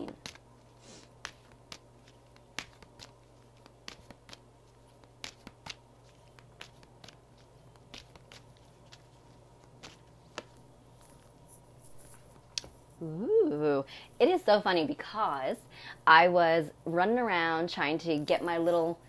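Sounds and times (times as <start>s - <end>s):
cards shuffling: 0.0s - 12.9s
low steady hum: 0.0s - 19.0s.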